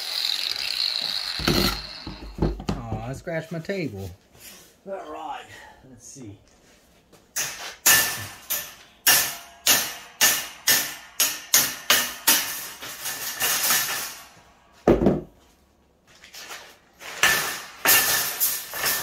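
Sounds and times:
hammer striking metal tube: 1.4s - 2.6s, 7.4s - 14.4s
dull thump: 14.9s - 15.4s.

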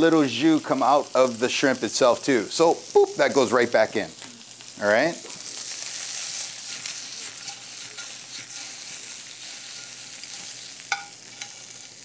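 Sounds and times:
shrimp sizzling in hot oil: 0.0s - 12.0s
tongs clinking against pan: 6.6s - 12.0s.

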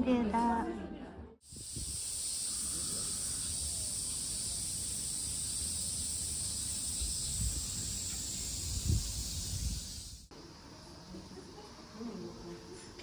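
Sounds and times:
cicadas droning: 1.4s - 12.9s
wind rumble on microphone: 1.5s - 3.2s, 6.8s - 10.3s.

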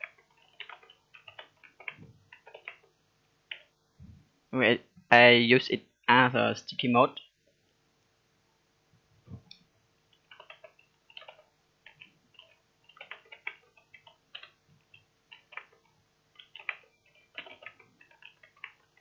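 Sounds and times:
keyboard typing: 0.0s - 3.7s, 9.5s - 19.0s.

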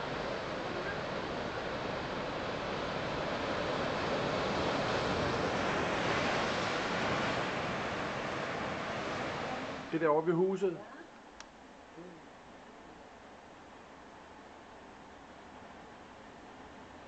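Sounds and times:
surf breaking over rocks: 0.0s - 10.8s.

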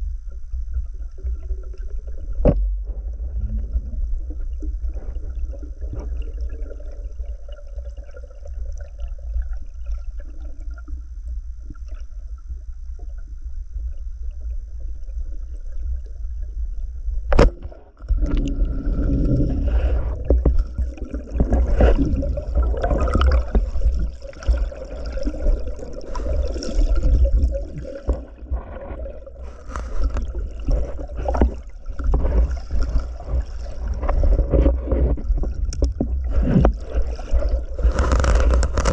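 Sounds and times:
underwater low rumble: 0.0s - 38.9s
sharp click underwater: 17.3s - 18.6s, 34.0s - 38.9s
churning water with knocks: 19.5s - 38.9s.

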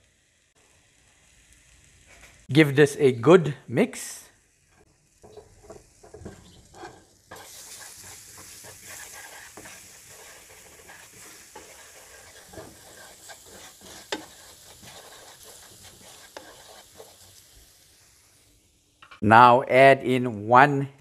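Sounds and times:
food sizzling in hot oil: 0.0s - 3.0s, 3.9s - 19.2s
wooden spoon scraping pan: 4.8s - 17.4s.

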